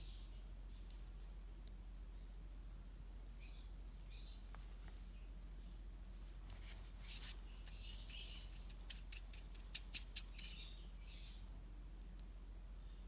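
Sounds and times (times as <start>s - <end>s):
steady low hum: 0.0s - 13.0s
hands rubbing clay: 6.3s - 10.7s
small sharp clicks: 7.6s - 10.6s.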